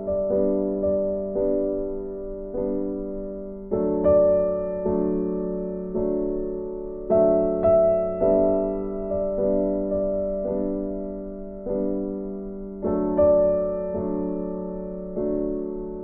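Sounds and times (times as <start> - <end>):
slow piano chords: 0.0 - 16.0.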